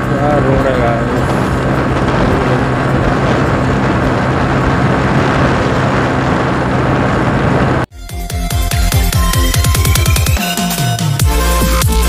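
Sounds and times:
motorcycle engine running: 0:00.0 - 0:07.8
wind on microphone: 0:00.0 - 0:07.9.

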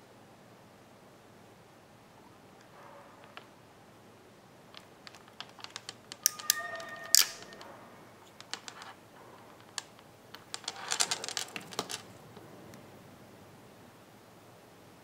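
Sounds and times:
tool and wire clattering: 0:04.8 - 0:12.2.

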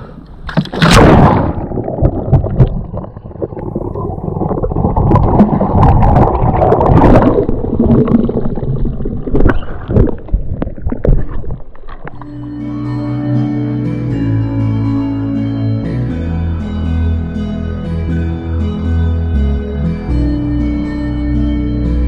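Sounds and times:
water splashing against kayak: 0:00.0 - 0:12.2
music: 0:12.2 - 0:22.0.

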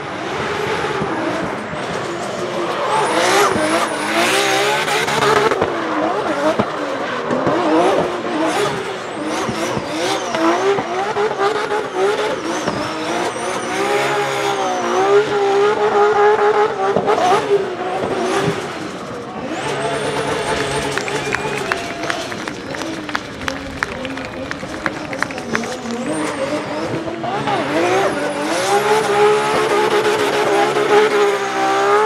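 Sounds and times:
car engine revving: 0:00.0 - 0:32.0
tyre squeal: 0:02.6 - 0:05.5, 0:11.9 - 0:15.4, 0:18.8 - 0:32.0.

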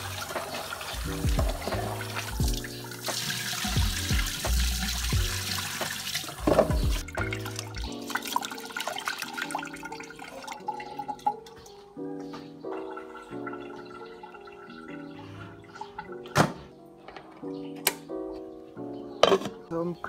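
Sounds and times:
background music with bass line: 0:00.0 - 0:08.0
rice being rinsed by hand: 0:00.0 - 0:11.4
tap water running into metal pot: 0:00.0 - 0:11.6.

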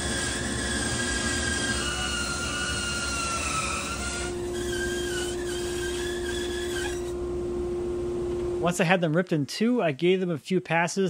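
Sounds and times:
saw blade whining in wood: 0:00.0 - 0:07.2
bandsaw motor hum: 0:00.0 - 0:08.8.

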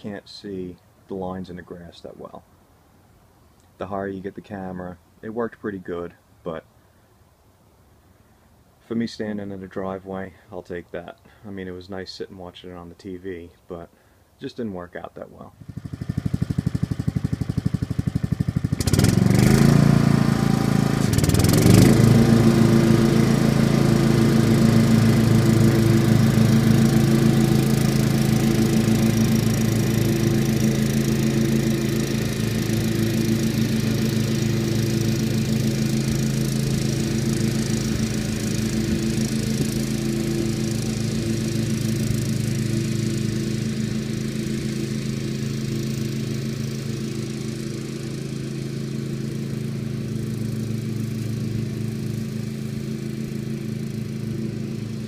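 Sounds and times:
mower engine running: 0:15.6 - 0:55.0.

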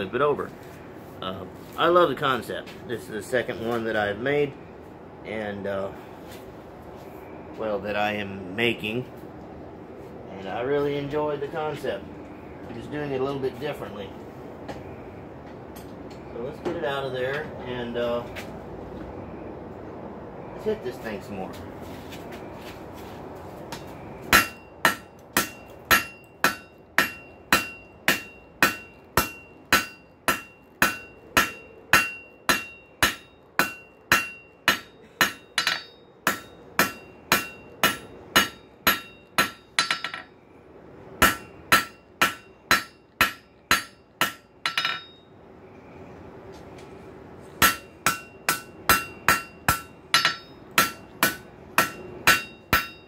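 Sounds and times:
hammer striking metal on anvil: 0:23.8 - 0:40.3, 0:41.2 - 0:45.3, 0:47.6 - 0:53.0
anvil ringing: 0:24.3 - 0:40.4, 0:41.2 - 0:45.3, 0:47.6 - 0:53.0.

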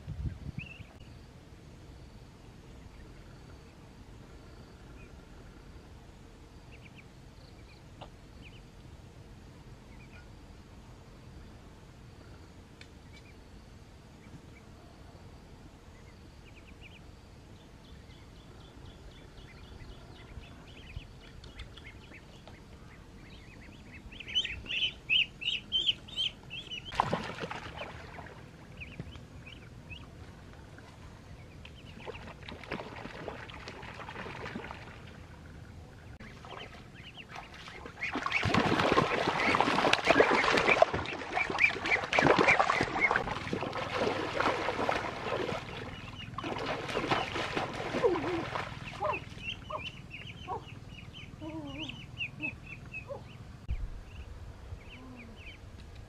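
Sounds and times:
ducklings peeping: 0:00.2 - 0:01.0, 0:06.7 - 0:08.7, 0:09.8 - 0:10.4, 0:17.8 - 0:27.1, 0:27.8 - 0:33.4, 0:35.9 - 0:55.6
person wading through water: 0:27.0 - 0:28.8, 0:32.0 - 0:35.6, 0:36.3 - 0:49.5.

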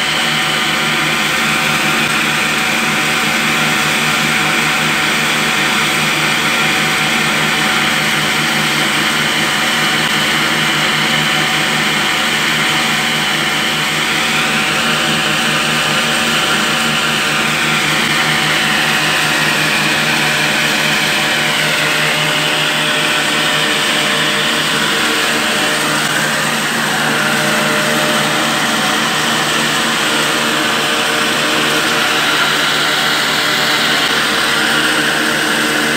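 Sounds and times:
wavering high whine: 0:00.0 - 0:35.9
flour mill grinding: 0:00.2 - 0:35.9.

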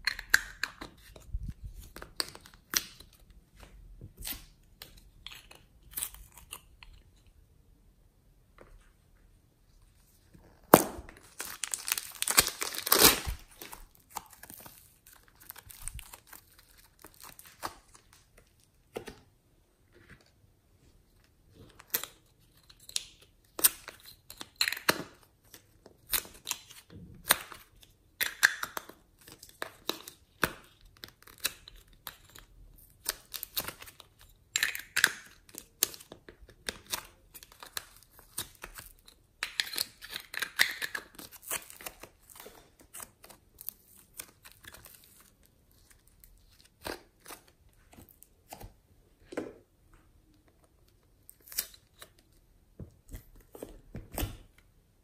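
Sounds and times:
plastic crinkling: 0:10.7 - 0:18.6.

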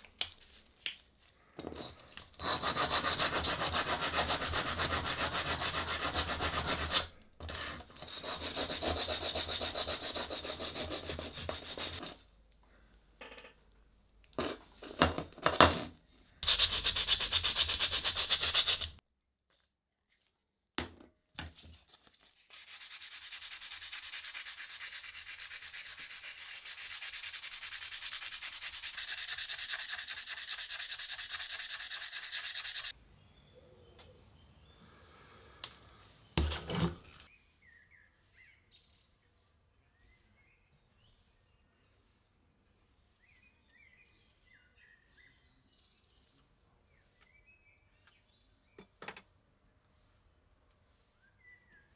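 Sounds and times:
metal file rasping on iron: 0:01.7 - 0:12.2, 0:16.4 - 0:19.0, 0:22.8 - 0:32.9
sandpaper rubbing on steel blade: 0:02.4 - 0:12.2, 0:16.4 - 0:19.0, 0:22.1 - 0:32.9.

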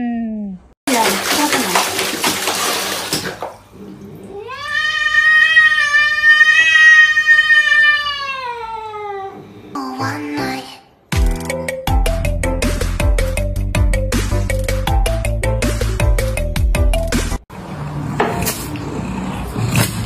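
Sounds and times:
water splashing in a plastic basin: 0:00.9 - 0:04.4
cat yowling: 0:04.2 - 0:09.5.

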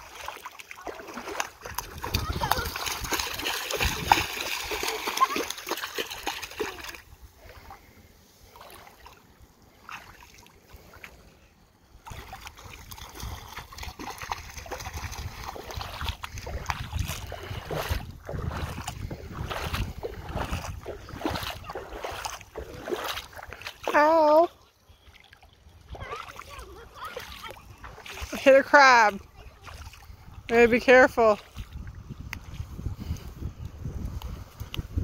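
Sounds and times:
bare feet splashing through water: 0:00.0 - 0:11.3, 0:11.9 - 0:33.1
wind rumble on microphone: 0:01.6 - 0:04.9, 0:12.1 - 0:23.8, 0:29.1 - 0:35.0.

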